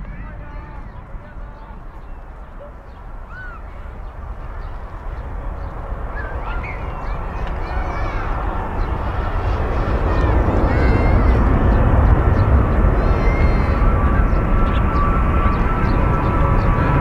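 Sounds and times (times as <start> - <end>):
bird chirps: 0.0 - 8.2
jet airliner engines roaring: 0.0 - 17.0.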